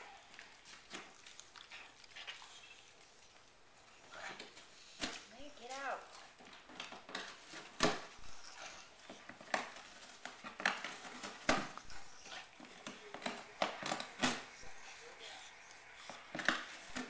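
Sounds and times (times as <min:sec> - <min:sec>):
dog tearing cardboard: 0:04.1 - 0:14.8.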